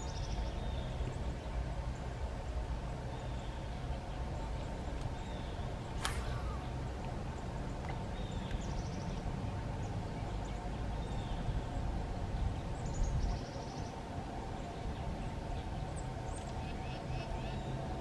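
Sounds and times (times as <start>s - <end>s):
steady low rumble: 0.0s - 16.4s
bird calls: 5.1s - 9.2s.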